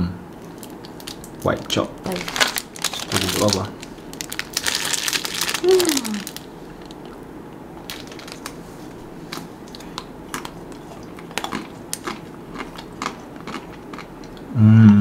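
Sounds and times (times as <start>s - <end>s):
chocolate coating cracking: 0.6s - 7.1s
chewing: 9.3s - 14.5s.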